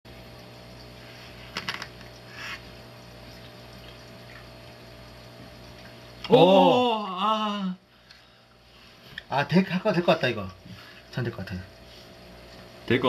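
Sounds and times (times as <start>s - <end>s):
person exclaiming loudly: 6.3s - 7.8s.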